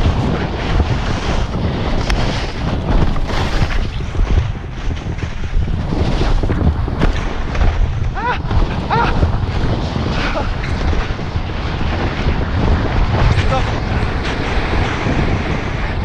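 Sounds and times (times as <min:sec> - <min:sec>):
skis scraping over snow: 0:00.0 - 0:16.0
wind buffeting microphone: 0:00.0 - 0:16.0.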